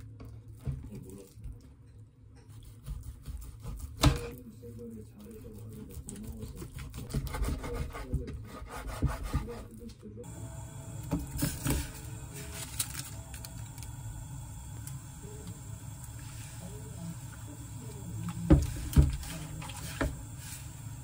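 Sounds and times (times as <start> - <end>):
knife sawing through meat: 2.5 - 4.4, 5.3 - 9.7.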